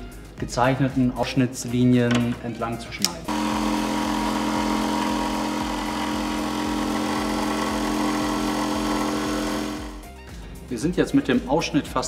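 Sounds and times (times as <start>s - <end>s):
jigsaw cutting worktop: 3.3s - 10.0s.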